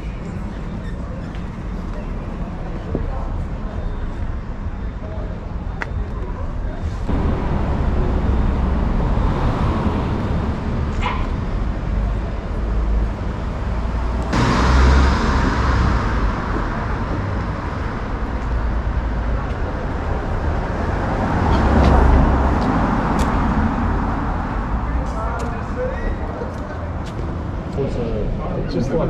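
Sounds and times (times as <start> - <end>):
cars passing: 6.7 - 29.0.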